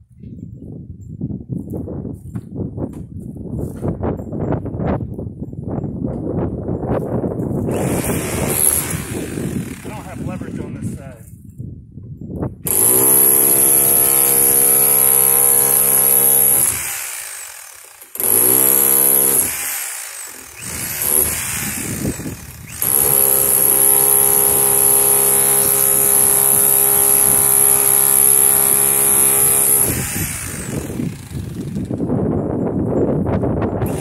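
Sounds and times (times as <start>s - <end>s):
electric jackhammer on metal: 7.7s - 10.4s, 12.7s - 32.2s, 33.8s - 34.0s.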